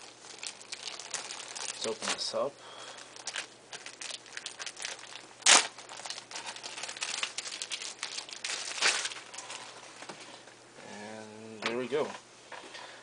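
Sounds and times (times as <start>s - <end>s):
plastic bag crinkling: 0.0s - 10.1s.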